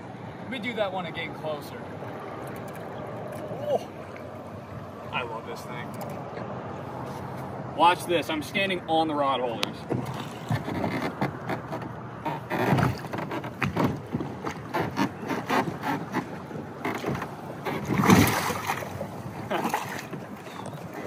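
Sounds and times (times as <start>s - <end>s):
water slapping against boat hull: 9.5s - 21.0s.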